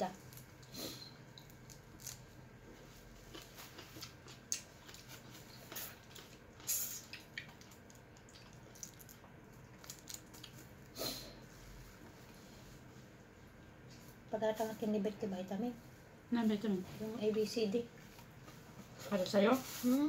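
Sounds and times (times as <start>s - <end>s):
chewing and handling food: 0.2s - 11.0s.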